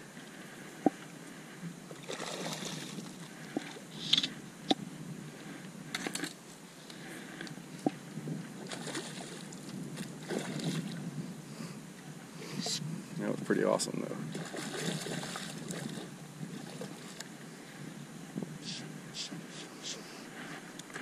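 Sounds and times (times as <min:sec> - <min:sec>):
water splashing around a kayak: 0:00.1 - 0:04.0, 0:07.0 - 0:11.3, 0:13.6 - 0:17.9
fish thrashing in water: 0:01.9 - 0:03.8, 0:08.6 - 0:11.0, 0:14.3 - 0:17.2.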